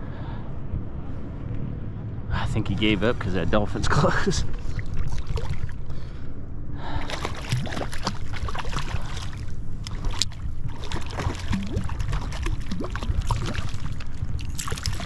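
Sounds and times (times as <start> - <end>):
steady low noise: 0.0 - 15.0
fish thrashing and splashing: 4.6 - 5.8, 7.0 - 15.0.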